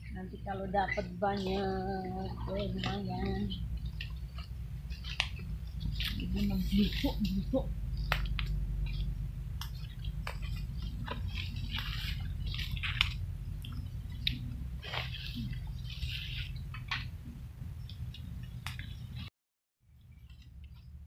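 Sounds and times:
low handling rumble: 0.0 - 19.3
leaves crackling and rustling: 0.5 - 17.4
footsteps on wet forest ground: 2.6 - 17.1.

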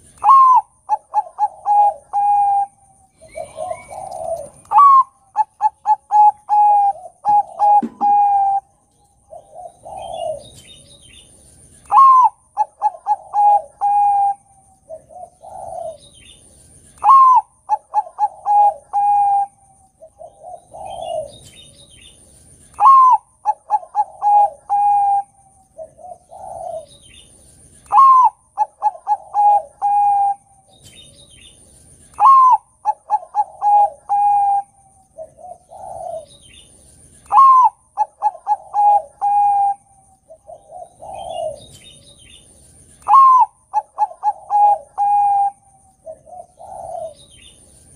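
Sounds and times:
dove cooing: 0.0 - 22.1, 22.7 - 31.1, 32.1 - 47.9
softer lower coo: 46.2 - 47.2.

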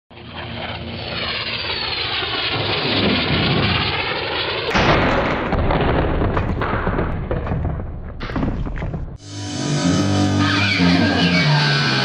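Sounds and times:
loud crash: 4.7 - 9.3.

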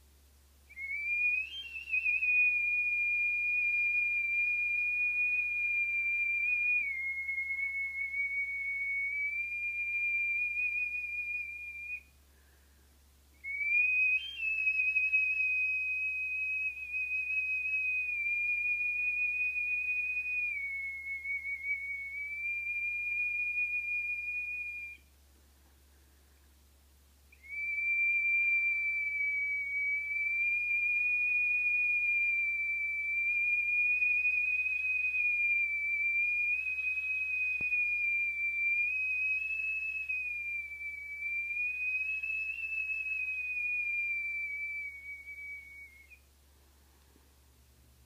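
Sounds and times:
stone whistle high notes: 13.4 - 25.1, 27.3 - 46.3.

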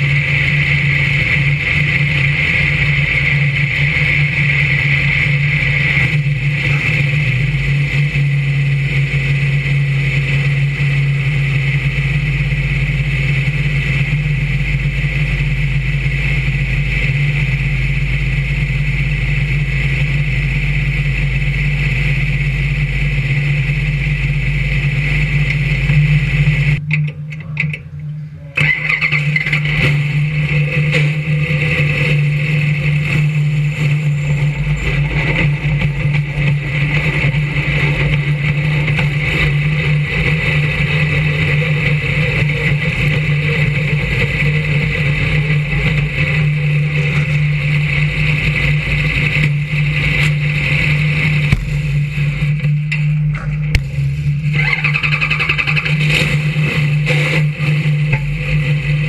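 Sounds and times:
car engine idling: 0.0 - 59.0.

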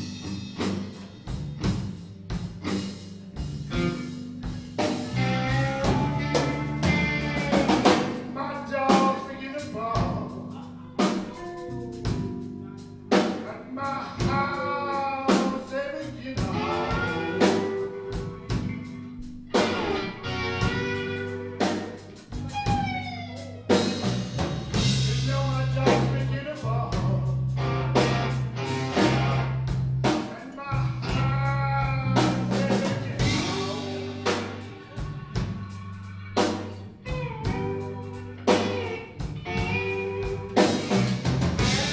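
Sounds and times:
live blues band playing: 0.0 - 41.9
harmonica with bending notes: 2.8 - 8.5, 16.2 - 24.4, 27.6 - 29.8, 31.2 - 41.9.

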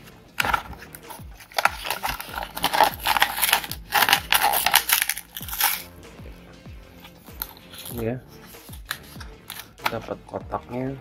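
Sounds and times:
blister pack crinkling and tearing: 0.4 - 5.9.

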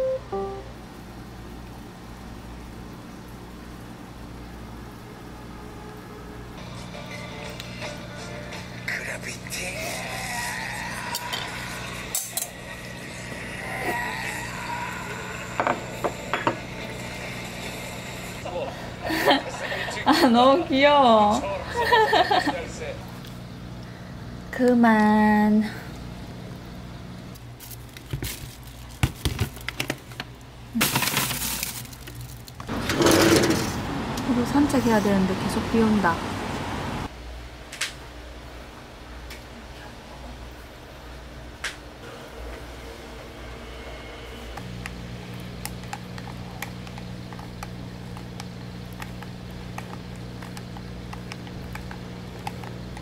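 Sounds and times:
plastic bag rustling: 27.4 - 32.8
steady low hum: 33.7 - 53.0.

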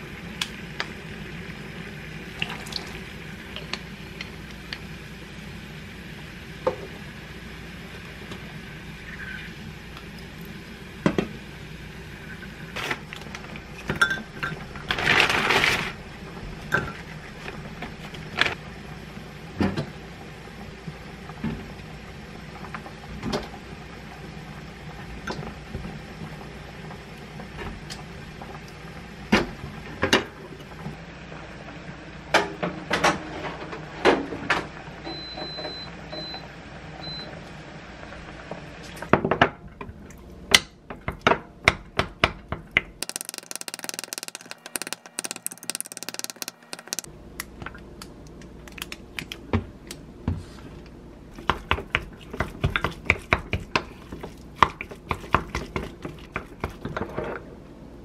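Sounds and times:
air fryer touch panel beeps: 35.1 - 37.4
clicks and taps: 43.0 - 47.1.

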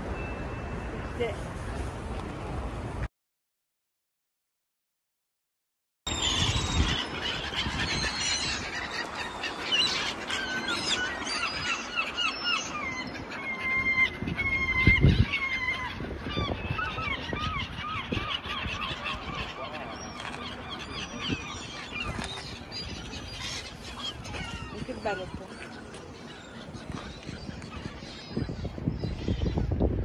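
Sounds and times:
flock of gulls calling: 6.1 - 30.0.

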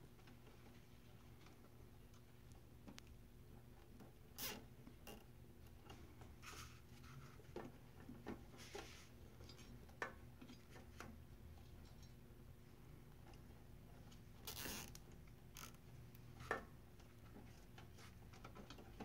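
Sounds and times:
clicks and rustles of wiring: 13.1 - 19.0.

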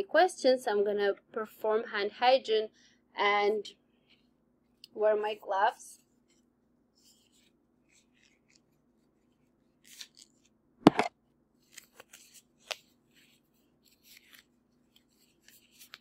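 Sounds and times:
gloves rustling and crinkling: 6.0 - 10.6, 11.6 - 16.0.

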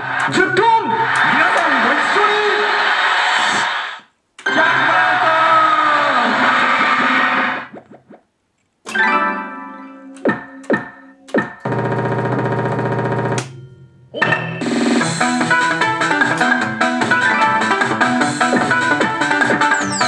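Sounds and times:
upbeat synthesized music: 14.2 - 20.0
electronic jingle: 19.6 - 20.0
falling-pitch electronic sweeps: 19.7 - 20.0.

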